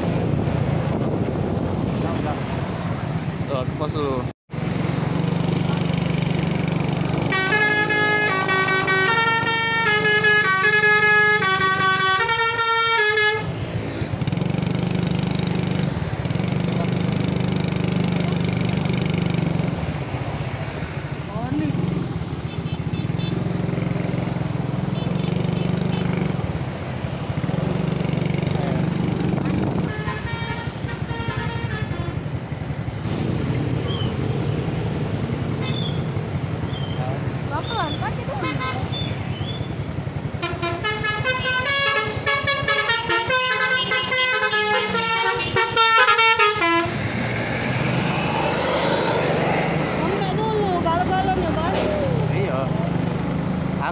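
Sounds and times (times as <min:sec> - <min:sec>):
motorcycle engines passing: 0:00.0 - 0:53.9
road traffic: 0:00.0 - 0:53.9
musical bus horn playing tune: 0:07.2 - 0:13.5, 0:29.8 - 0:32.2, 0:38.4 - 0:38.9, 0:40.4 - 0:47.0.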